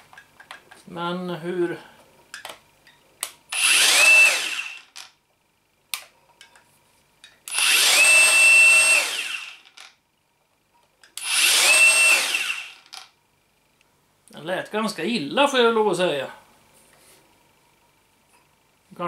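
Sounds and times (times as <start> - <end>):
angle grinder whine: 3.5 - 5.0, 7.5 - 9.8, 11.2 - 12.9.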